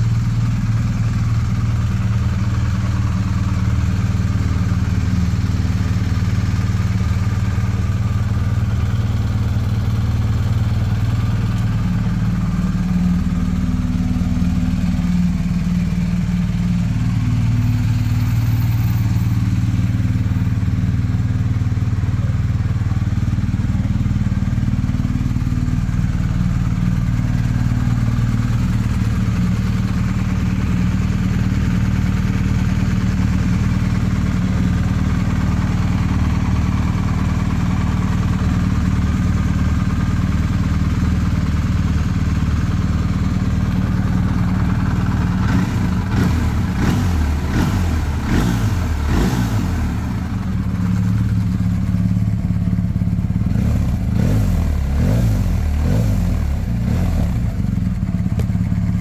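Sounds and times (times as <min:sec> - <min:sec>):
motorcycle engine idling: 0:00.0 - 0:59.0.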